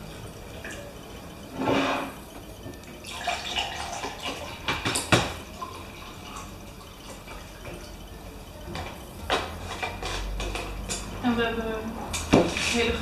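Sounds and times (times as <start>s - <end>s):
liquid pouring into a glass: 3.0s - 8.2s.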